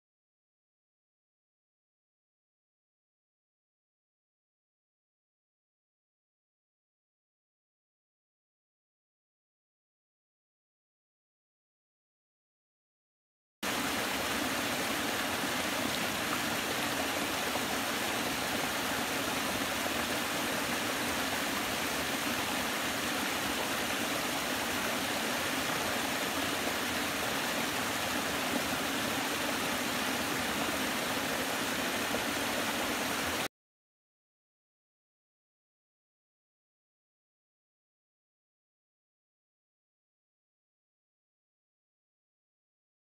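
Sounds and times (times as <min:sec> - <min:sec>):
water rushing over cascade: 0:13.6 - 0:33.5.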